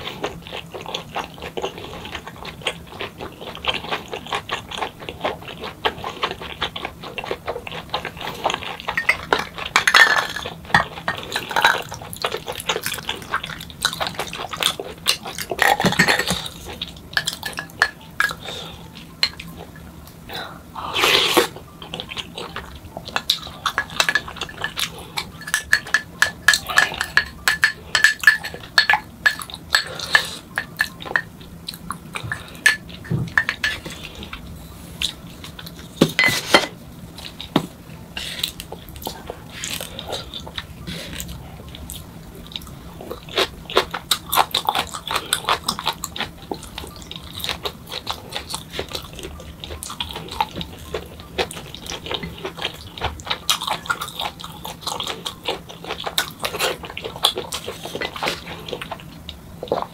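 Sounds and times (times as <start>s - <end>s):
chewing: 0.0s - 59.9s
utensils clinking on ceramic bowl: 8.8s - 12.0s, 23.2s - 31.3s, 32.3s - 34.1s.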